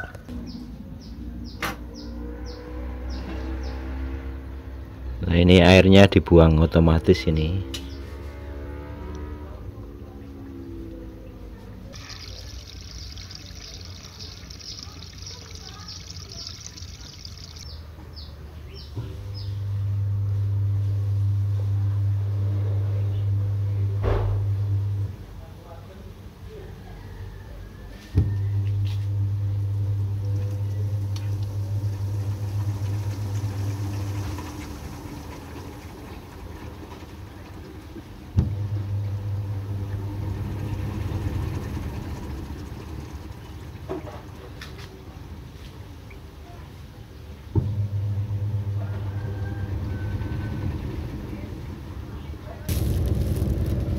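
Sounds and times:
water pouring into floor drain: 11.9s - 17.7s, 30.2s - 38.3s, 39.8s - 44.8s, 52.7s - 53.9s
washing machine motor humming: 12.0s - 25.2s, 28.2s - 46.0s, 47.5s - 53.9s.

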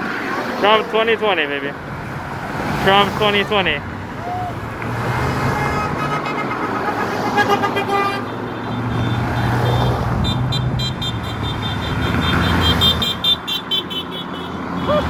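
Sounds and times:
road traffic passing: 0.0s - 15.0s
car horn beeping: 5.4s - 15.0s.

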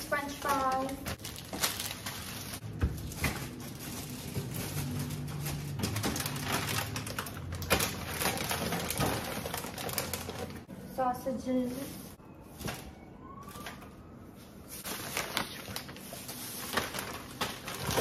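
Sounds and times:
plastic bags crinkling: 0.0s - 10.7s, 14.7s - 18.0s.

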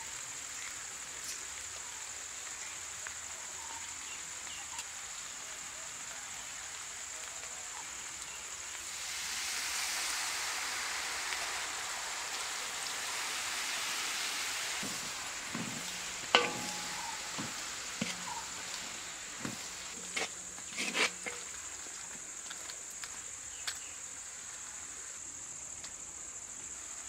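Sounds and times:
vegetables sizzling in a pan: 0.0s - 25.4s
wooden spatula knocking on pan: 14.8s - 21.4s.

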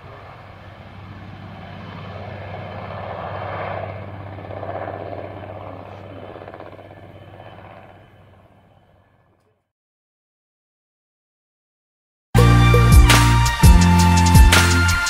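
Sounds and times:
helicopter rotor chopping: 0.0s - 9.3s.

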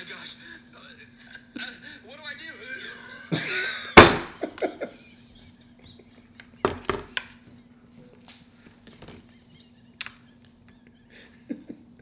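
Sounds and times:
head hitting garage door: 4.0s - 4.4s.

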